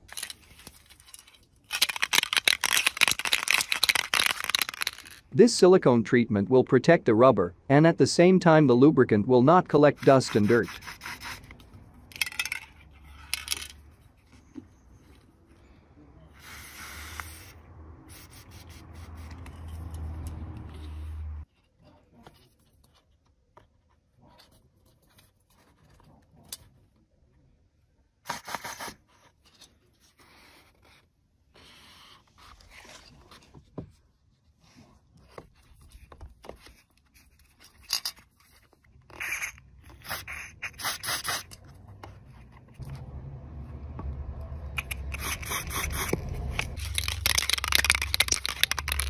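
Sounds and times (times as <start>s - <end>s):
scraping and rubbing on rubber: 10.0s - 11.7s, 44.8s - 49.0s
low steady rumble: 42.0s - 49.0s.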